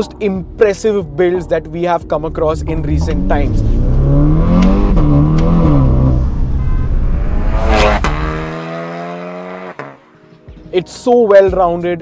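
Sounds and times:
car engine revving: 0:01.5 - 0:10.1
turbo whoosh: 0:02.3 - 0:09.3.

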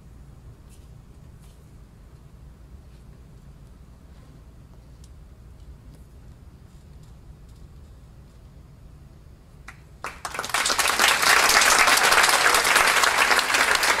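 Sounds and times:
faint low room hum: 0:00.0 - 0:14.0
audience applause: 0:10.0 - 0:14.0.

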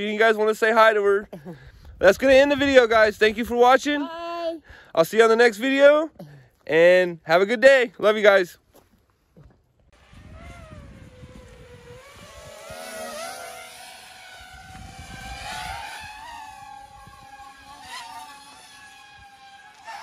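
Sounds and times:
wind rumbling on microphone: 0:01.6 - 0:03.9, 0:09.8 - 0:20.0
quadcopter motors buzzing: 0:09.4 - 0:20.0.

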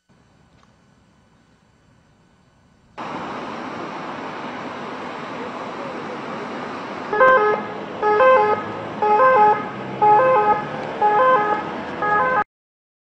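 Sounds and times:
traffic rumble: 0:00.0 - 0:12.4
emergency vehicle siren two-tone: 0:07.1 - 0:12.5.

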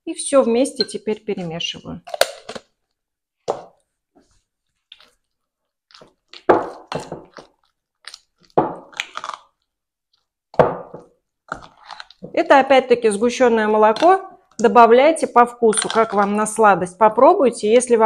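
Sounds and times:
spoon stirring thick mixture: 0:04.2 - 0:08.9, 0:10.2 - 0:16.8.

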